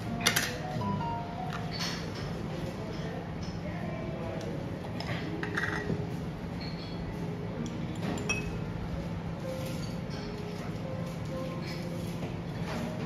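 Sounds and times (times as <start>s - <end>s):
soft background music: 0.0s - 13.0s
metal spoon clinking glass and ceramic: 7.9s - 8.6s.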